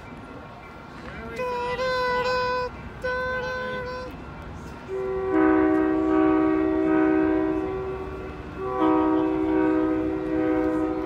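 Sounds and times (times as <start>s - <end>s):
train air horn blasts: 4.9s - 11.0s.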